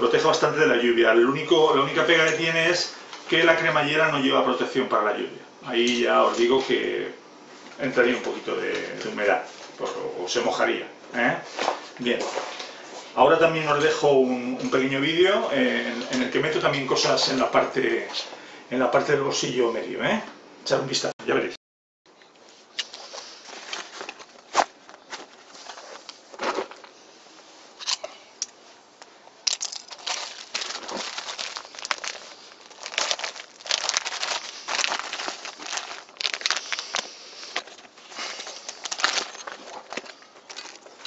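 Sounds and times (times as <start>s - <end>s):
gear rustling: 29.4s - 41.0s
plastic packaging crinkling: 29.4s - 41.0s.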